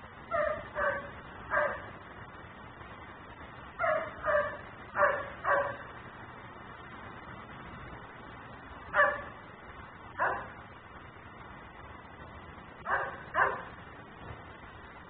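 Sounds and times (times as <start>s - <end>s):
dog barking: 0.3s - 1.9s, 3.8s - 5.9s, 8.9s - 9.4s, 10.2s - 10.6s, 12.8s - 13.8s.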